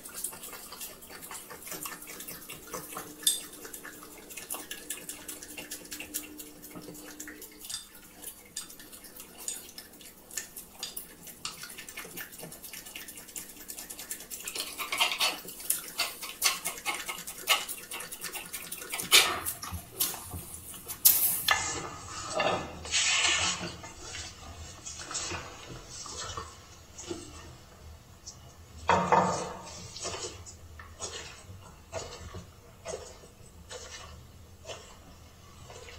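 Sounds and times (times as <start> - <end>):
dog licking and chewing: 0.0 - 21.5
plate scraping on floor: 21.3 - 24.3.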